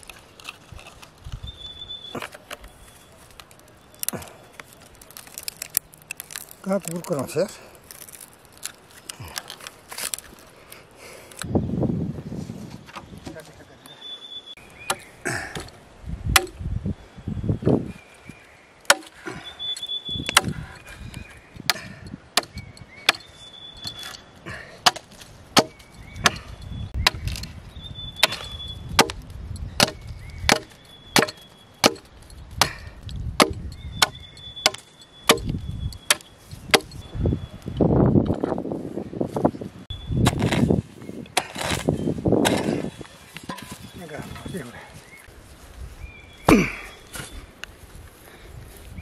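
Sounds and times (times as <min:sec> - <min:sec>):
knife chopping wood: 0:16.3 - 0:16.6, 0:18.9 - 0:19.2, 0:20.3 - 0:20.6, 0:21.6 - 0:23.3, 0:24.8 - 0:27.4, 0:28.2 - 0:36.9.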